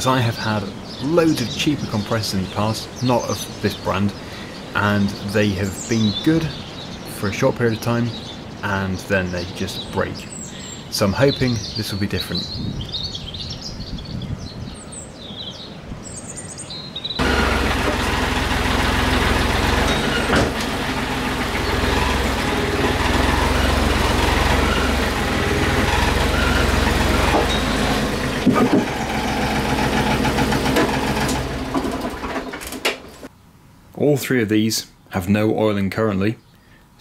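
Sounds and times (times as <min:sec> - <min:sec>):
birds chirping: 0:00.0 - 0:37.0
wind buffeting microphone: 0:11.4 - 0:16.2.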